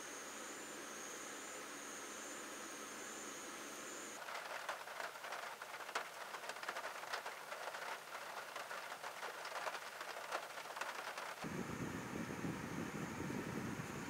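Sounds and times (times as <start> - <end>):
rain pattering on a car: 4.2 - 11.4
low steady rumble: 4.3 - 14.0.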